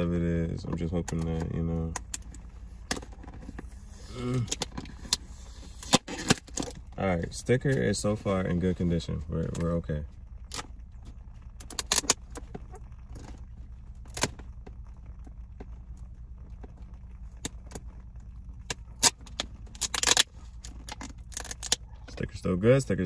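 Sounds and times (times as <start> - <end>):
low hum: 0.0 - 23.0
packing tape peeling: 18.7 - 21.8.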